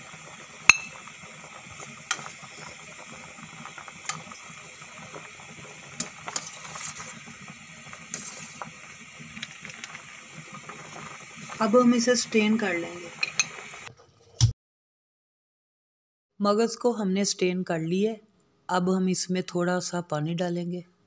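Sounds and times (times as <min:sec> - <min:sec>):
water boiling and bubbling: 0:00.0 - 0:14.2
metal spoon clinking on pot: 0:00.7 - 0:01.0, 0:13.2 - 0:13.5.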